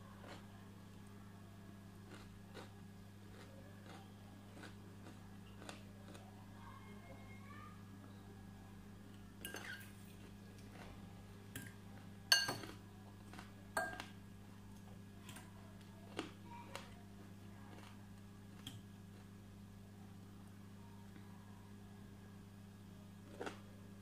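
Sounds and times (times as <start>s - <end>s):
steady low hum: 0.0s - 24.0s
fork clinking on glass bowl: 12.3s - 12.7s.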